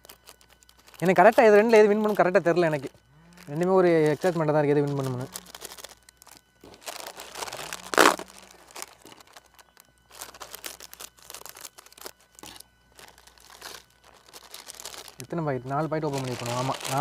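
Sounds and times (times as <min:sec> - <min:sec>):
plastic packets crinkling: 0:00.0 - 0:17.0.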